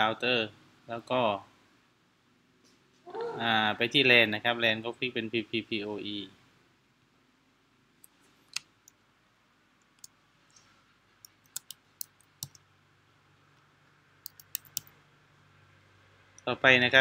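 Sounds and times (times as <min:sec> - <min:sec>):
computer keyboard typing: 0:11.2 - 0:12.6, 0:14.2 - 0:14.9.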